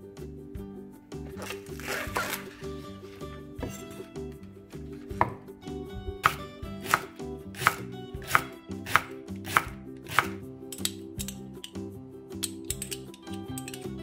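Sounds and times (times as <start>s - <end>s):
knife chopping on wooden board: 5.0s - 5.5s, 6.2s - 10.4s.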